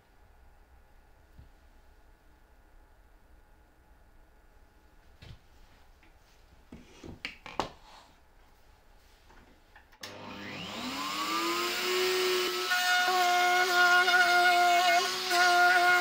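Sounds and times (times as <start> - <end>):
router spinning up and whining: 10.0 - 16.0.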